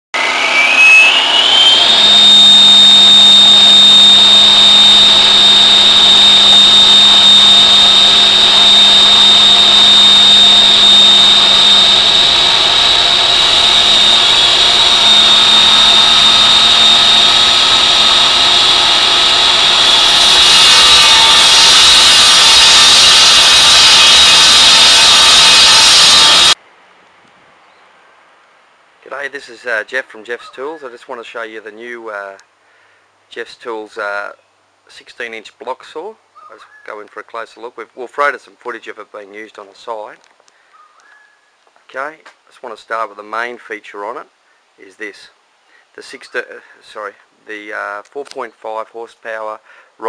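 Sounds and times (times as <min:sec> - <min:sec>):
block saw cutting concrete: 0:00.2 - 0:26.6.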